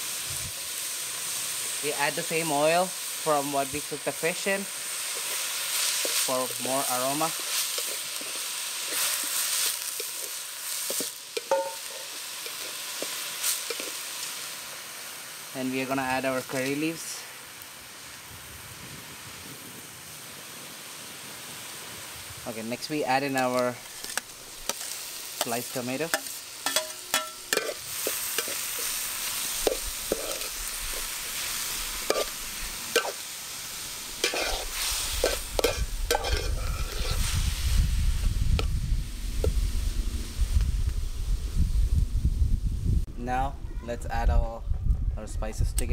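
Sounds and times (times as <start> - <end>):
onions sizzling in oil: 0.0 - 43.0
metal spatula scraping pot: 5.1 - 14.0, 23.4 - 33.2, 34.2 - 37.3
spatula clinking against pot: 11.4 - 12.7, 26.1 - 27.8, 35.2 - 37.1
low rumble: 35.8 - 43.8.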